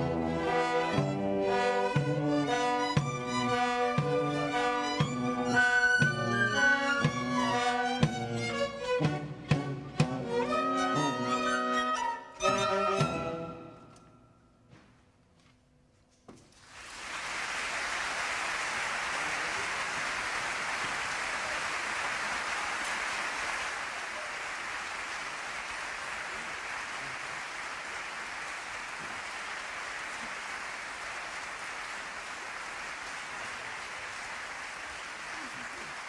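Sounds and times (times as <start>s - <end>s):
audience applauding: 16.6s - 36.0s.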